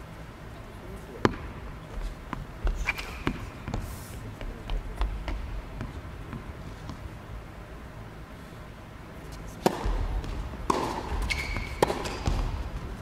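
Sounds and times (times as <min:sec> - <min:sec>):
tennis ball bouncing on hard court: 0:01.2 - 0:03.9, 0:04.7 - 0:07.1, 0:09.6 - 0:13.0.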